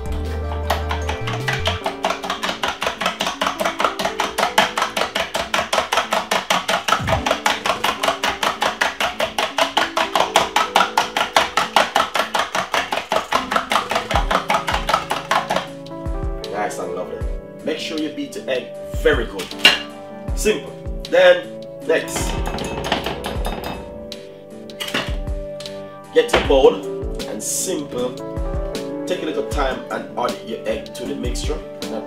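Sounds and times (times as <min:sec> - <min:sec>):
fork beating eggs in metal bowl: 0:00.2 - 0:15.8.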